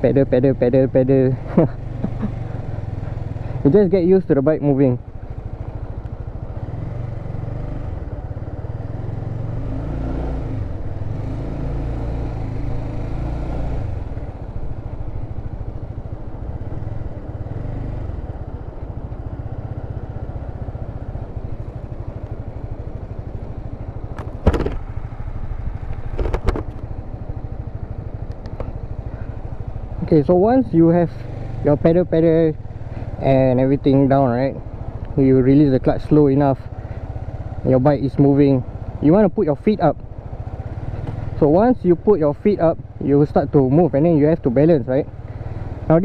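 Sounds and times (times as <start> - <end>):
motorcycle engine revving: 0.0 - 46.0
sharp knocks: 24.2 - 24.9.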